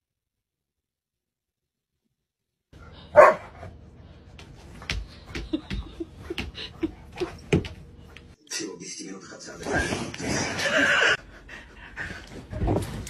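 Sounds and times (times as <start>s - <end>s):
small dog barking: 3.1s - 3.4s.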